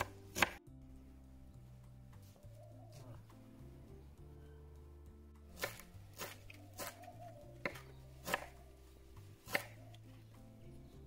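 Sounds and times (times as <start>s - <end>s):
knife chopping on wooden board: 0.0s - 0.6s, 5.5s - 8.6s, 9.4s - 9.8s.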